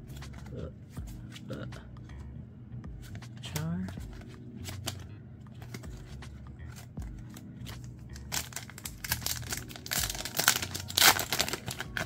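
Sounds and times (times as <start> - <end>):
card pack crinkling and rustling: 6.7 - 12.0.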